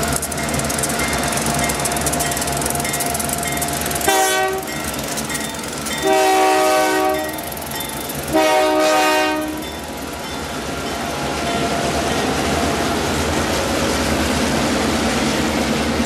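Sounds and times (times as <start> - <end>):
diesel locomotives running: 0.0 - 16.0
locomotive air horn blasts: 4.0 - 4.7, 6.0 - 7.4, 8.3 - 9.6.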